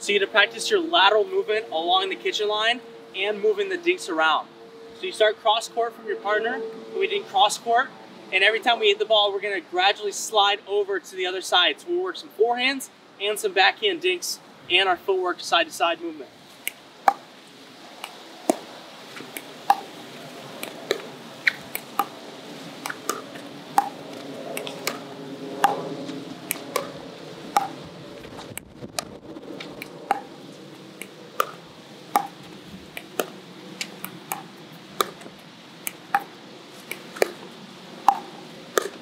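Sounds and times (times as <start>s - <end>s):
paddles tapping ball: 16.6s - 17.3s, 18.0s - 19.9s, 20.6s - 22.2s, 22.8s - 27.8s, 29.6s - 30.3s, 31.0s - 39.0s
ball bouncing on hard court: 18.0s - 18.7s, 19.7s - 19.9s, 22.8s - 25.0s, 25.6s - 25.8s, 27.6s - 27.8s, 30.1s - 30.3s, 31.4s - 33.4s, 34.0s - 35.3s, 36.1s - 39.0s.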